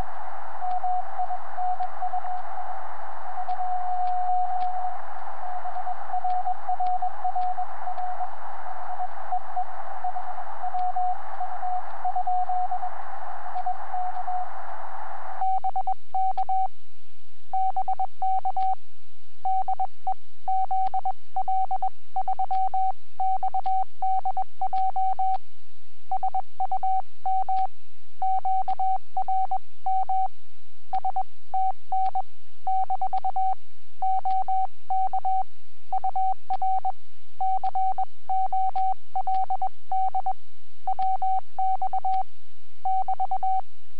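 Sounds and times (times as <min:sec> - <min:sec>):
steady radio tone: 0:00.0 - 0:15.8
receiver hiss: 0:00.0 - 0:43.9.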